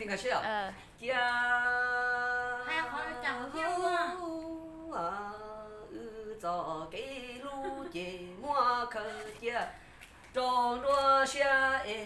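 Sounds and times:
woman singing long sliding notes: 1.1s - 9.3s.

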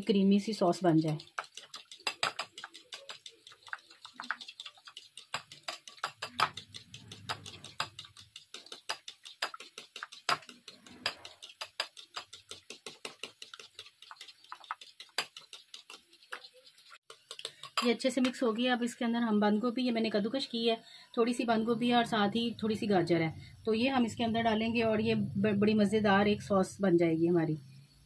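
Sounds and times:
utensil stirring sauce in bowl: 0.0s - 18.6s.

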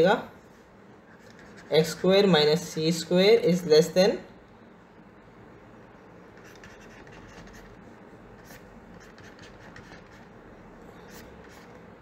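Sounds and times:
stylus scratching on tablet: 1.0s - 2.3s, 5.8s - 11.9s.

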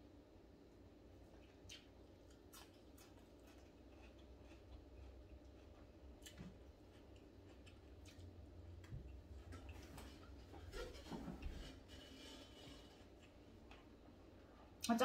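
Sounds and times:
person chewing: 1.1s - 10.4s.

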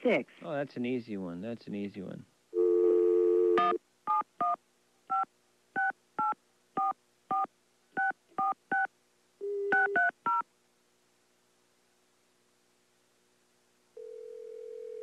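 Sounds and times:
steady dial tone: 2.6s - 5.2s, 5.8s - 10.4s, 14.0s - 15.0s
telephone keypad beeps: 9.7s - 10.4s.

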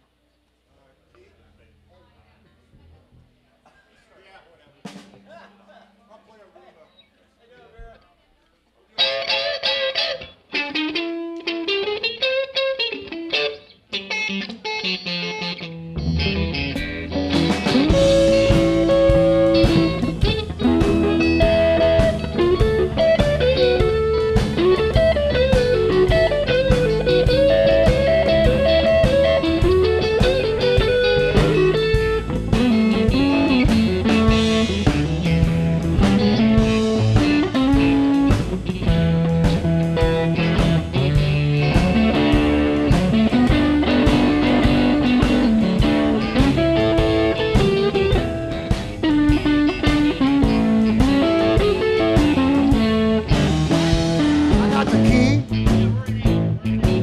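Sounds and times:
rhythm guitar: 0.0s - 57.0s
electric guitar lead lines: 9.0s - 57.0s
steady beat: 15.6s - 57.0s.

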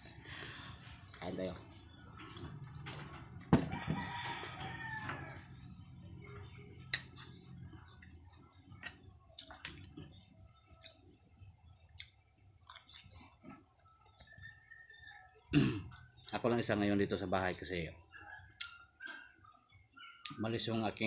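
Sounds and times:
chewing and mouth sounds: 8.8s - 11.0s, 11.9s - 14.2s.

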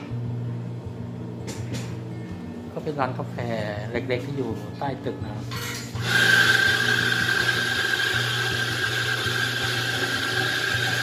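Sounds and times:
espresso steam wand squealing: 6.0s - 11.0s.

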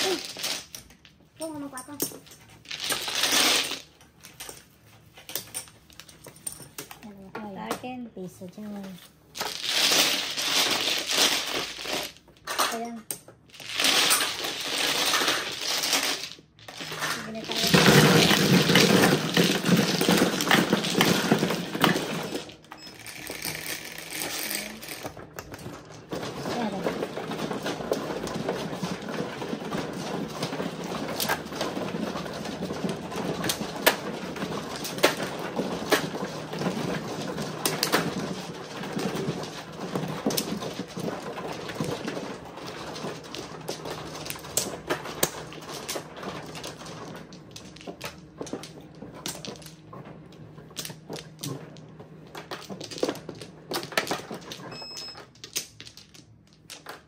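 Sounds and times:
mahjong tiles clattering: 0.0s - 7.8s, 8.6s - 57.0s.

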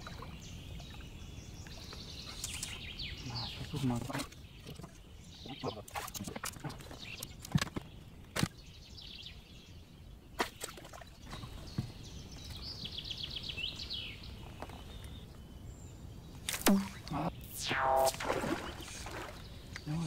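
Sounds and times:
knocks and taps in a boat: 11.3s - 12.0s
songbird trilling: 16.7s - 20.0s.

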